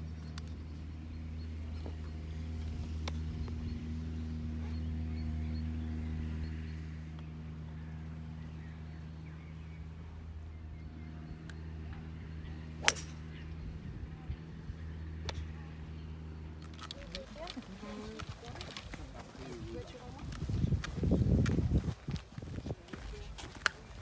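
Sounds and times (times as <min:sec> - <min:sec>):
steady low hum: 0:00.0 - 0:24.0
golf irons striking balls: 0:12.7 - 0:13.5.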